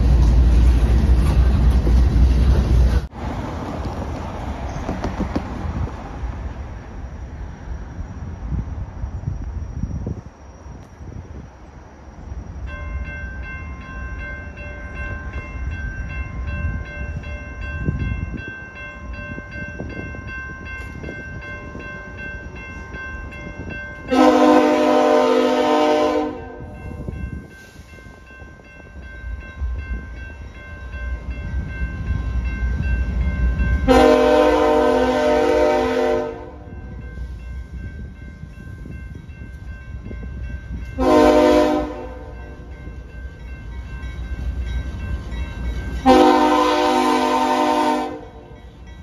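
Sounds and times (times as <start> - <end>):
wind noise: 0.0 - 46.5
railroad crossing bell ringing: 12.4 - 49.0
locomotive air horn: 24.1 - 26.8, 33.9 - 36.7, 41.0 - 42.4, 46.0 - 48.5.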